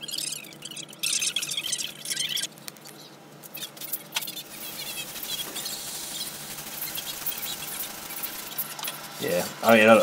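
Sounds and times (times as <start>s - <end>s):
sandpaper rasping on metal: 4.4s - 9.2s.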